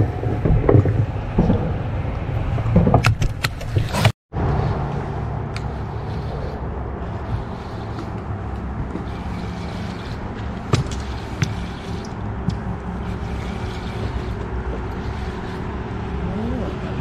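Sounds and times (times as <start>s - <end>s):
water around hull: 0.0s - 17.0s
boat motor running: 5.4s - 17.0s.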